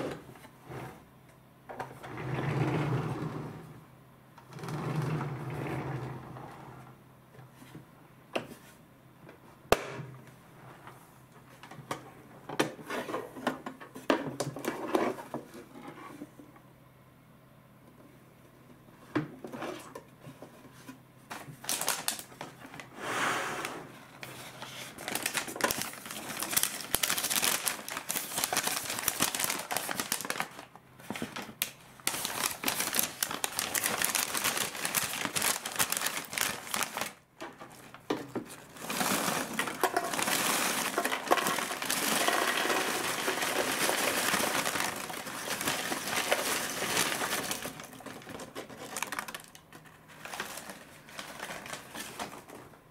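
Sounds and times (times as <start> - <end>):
paper bag crinkling: 21.6 - 22.5, 24.4 - 52.7
popcorn pouring into plastic bucket: 25.0 - 30.7, 32.1 - 37.2, 38.6 - 52.6.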